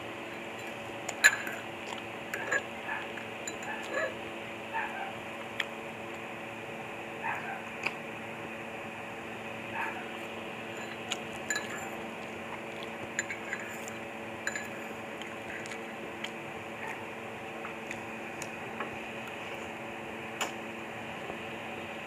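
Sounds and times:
steady background hum: 0.0 - 22.0
cutlery clinking against bowl: 1.1 - 1.6, 3.4 - 4.0, 10.7 - 11.9, 13.2 - 14.8.

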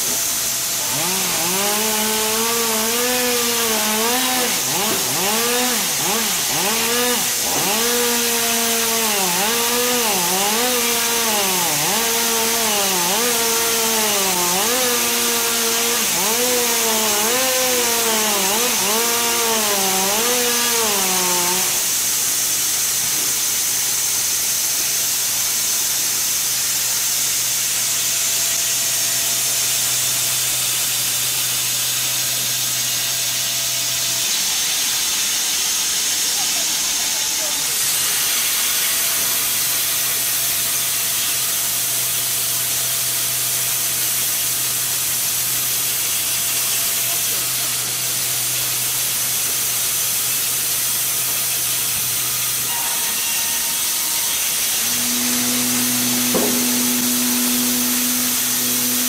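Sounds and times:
machine hiss and hum: 0.0 - 2.8, 21.0 - 59.0
sawmill blade whine: 0.0 - 59.0.

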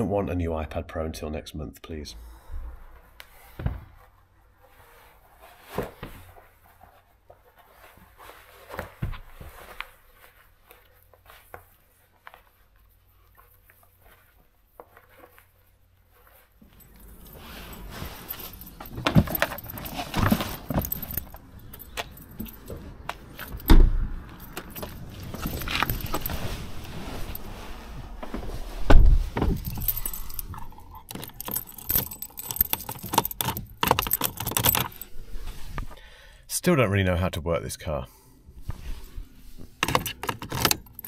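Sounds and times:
footsteps: 7.8 - 32.7
car keys jangling: 16.6 - 27.6, 29.2 - 35.2, 39.8 - 41.0
handling knocks: 17.7 - 27.4
heavy thumps: 28.0 - 30.1.

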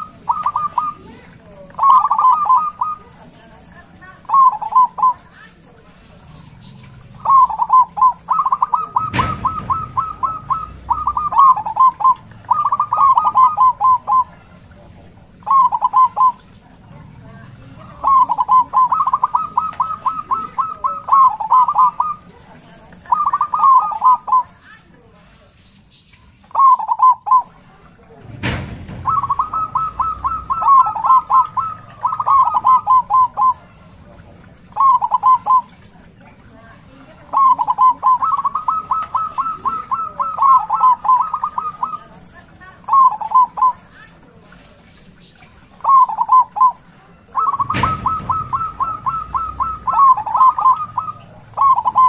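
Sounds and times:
dove cooing: 0.0 - 25.3, 26.5 - 52.0
sharp knocks: 9.0 - 11.4, 28.2 - 31.6, 47.6 - 49.9.

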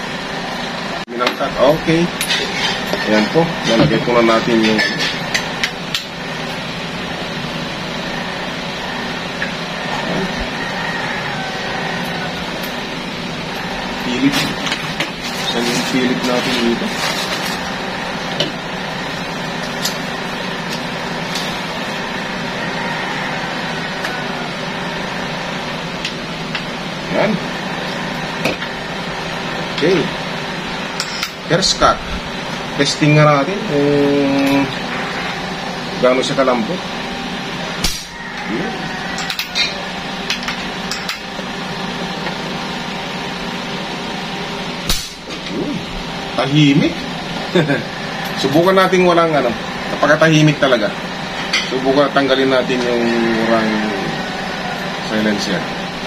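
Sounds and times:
steady whirring hum: 0.0 - 56.0
silenced airgun shot: 44.9 - 45.2.

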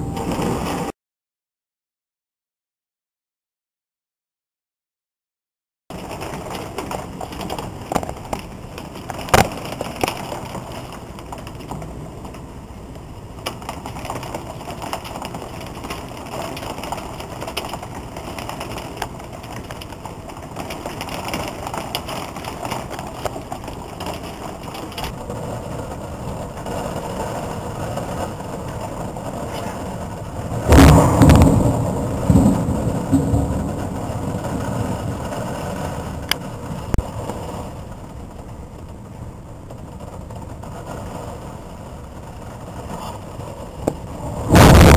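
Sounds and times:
heavy rain: 0.0 - 0.9, 5.9 - 44.9
drops or hail striking: 5.9 - 44.9
thunder clap: 13.3 - 38.5, 39.9 - 44.9.

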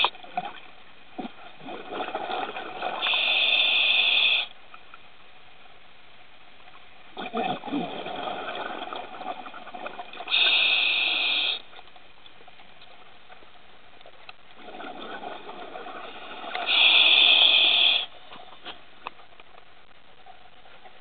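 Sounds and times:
scuba regulator breathing underwater: 3.0 - 4.5, 10.3 - 11.7, 16.0 - 18.2.

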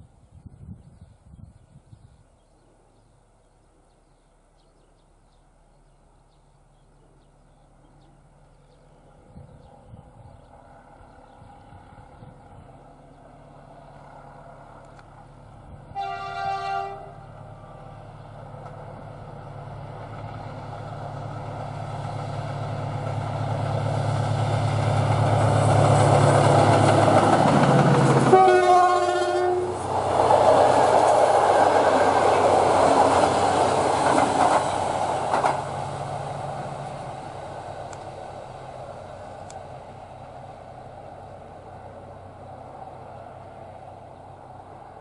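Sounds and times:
diesel locomotive engine drone: 2.2 - 45.0
train horn blast: 15.9 - 18.0, 28.2 - 29.8
passenger coaches rumbling and clattering: 18.0 - 45.0.

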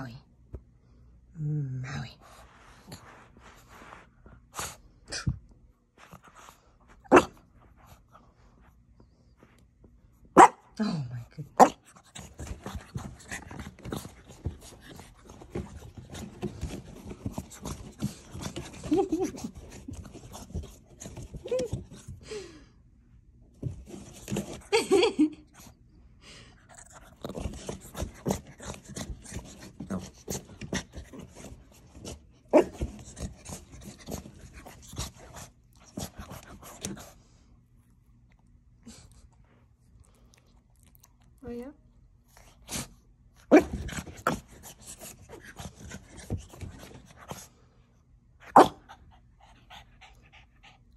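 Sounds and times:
puppy rubbing on carpet: 2.2 - 4.5
puppy paws rubbing carpet: 2.2 - 5.0, 5.8 - 10.3, 11.8 - 22.2, 23.5 - 25.1, 26.8 - 41.2, 43.6 - 47.7.

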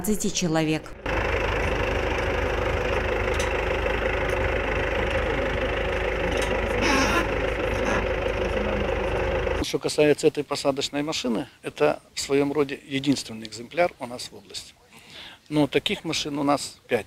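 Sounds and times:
tractor engine running: 0.3 - 9.6.

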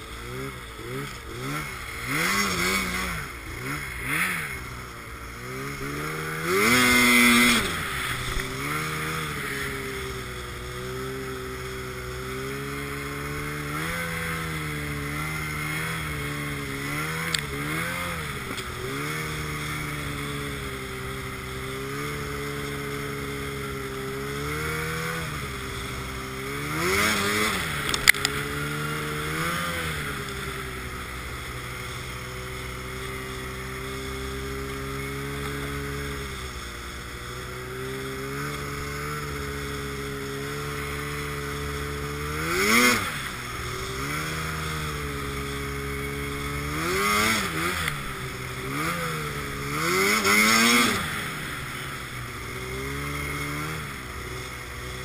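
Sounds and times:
hiss of snow and wind: 0.0 - 55.0
snowmobile engine revving: 0.0 - 55.0.

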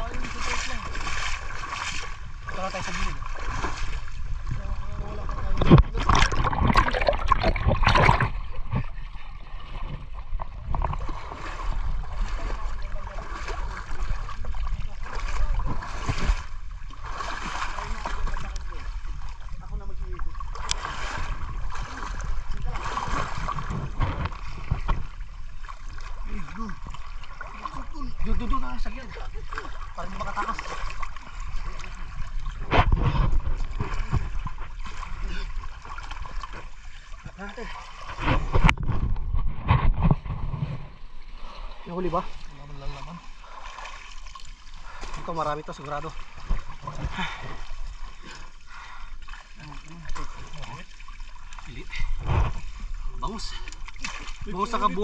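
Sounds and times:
water trickling: 0.0 - 32.7, 41.4 - 55.0
water splashing and sloshing: 0.0 - 55.0
loud water splash: 5.5 - 8.6, 11.0 - 18.9.

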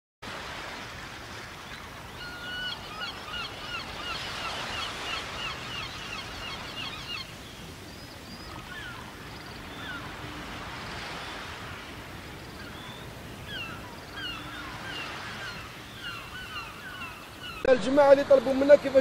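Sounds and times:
flock of birds chirping: 1.6 - 18.9.

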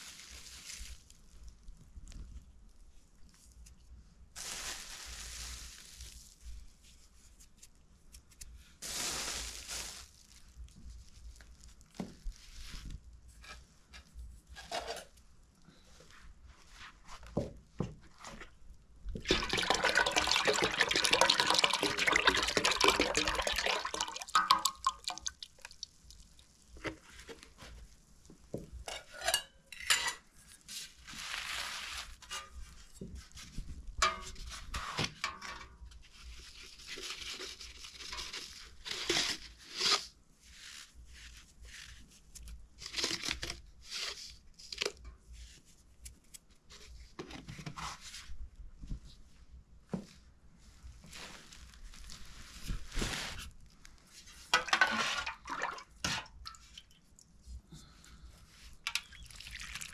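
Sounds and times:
liquid pouring: 19.2 - 26.3, 54.6 - 56.6, 59.0 - 59.9
bowls and utensils clinking: 28.8 - 30.2, 54.6 - 56.2, 58.9 - 59.4.

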